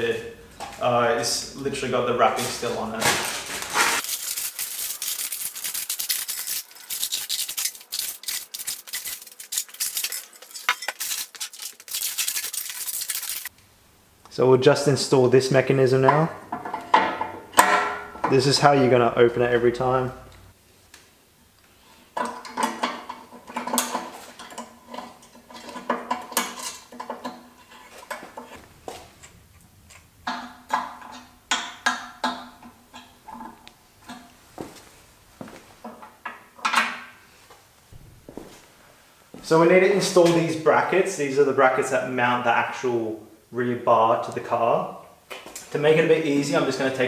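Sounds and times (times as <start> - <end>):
plastic wrapping crinkling: 2.9 - 13.5
metal hardware clinking and rattling: 4.0 - 11.8.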